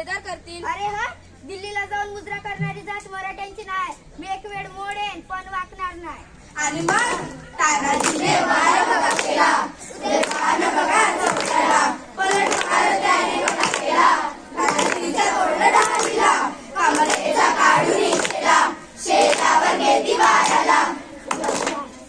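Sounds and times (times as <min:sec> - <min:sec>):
children singing in chorus: 0:06.7 - 0:21.9
children clapping: 0:06.7 - 0:22.0.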